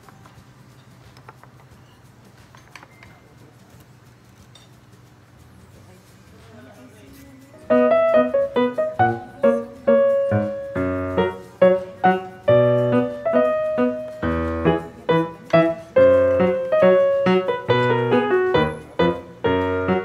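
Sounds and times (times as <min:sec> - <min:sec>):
piano music: 0:07.7 - 0:20.0.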